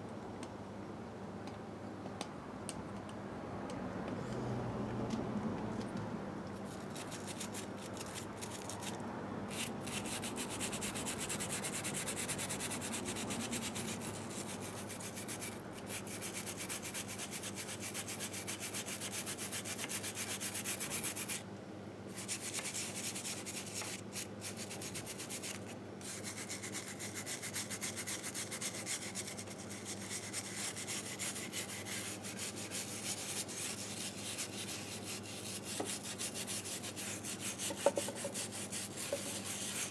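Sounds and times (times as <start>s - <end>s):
hand scrubbing metal: 22.2s - 39.9s.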